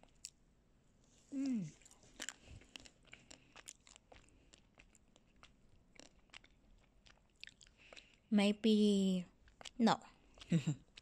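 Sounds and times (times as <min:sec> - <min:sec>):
ice cream shell crunching: 0:01.6 - 0:08.2.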